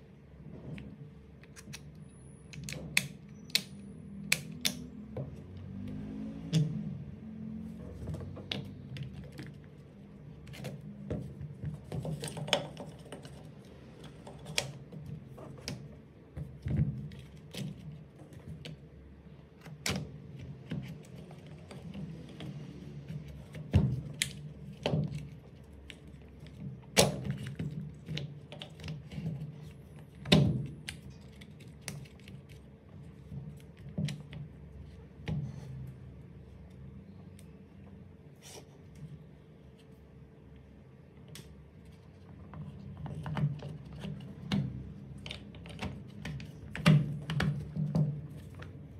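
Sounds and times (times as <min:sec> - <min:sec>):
plastic parts clicking and knocking: 0:10.4 - 0:18.8.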